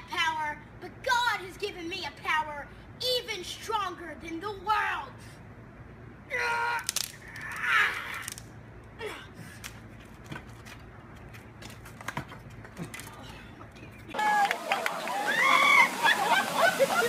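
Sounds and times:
boy yelling: 0:00.0 - 0:05.2, 0:06.2 - 0:08.2.

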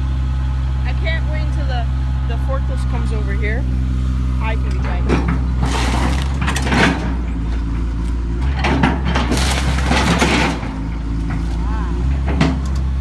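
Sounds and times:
diesel engine running: 0:00.0 - 0:13.0
wood and roofing crunching: 0:04.8 - 0:13.0.

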